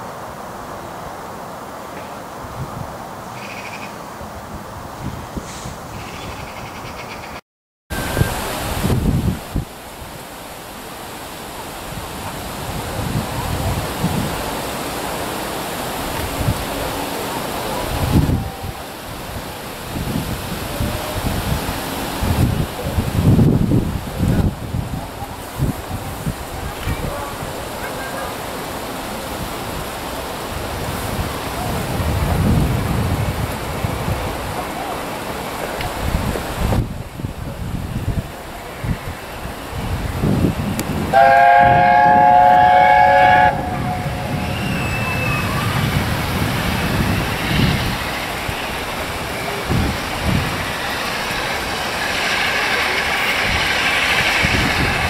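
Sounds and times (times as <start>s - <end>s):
wind buffeting microphone: 4.4s - 6.8s, 7.9s - 10.1s, 11.9s - 14.6s, 17.7s - 27.6s, 29.4s - 34.7s, 35.7s - 55.0s
steady rushing hiss: 7.9s - 55.0s
steam locomotive rumbling: 7.9s - 55.0s.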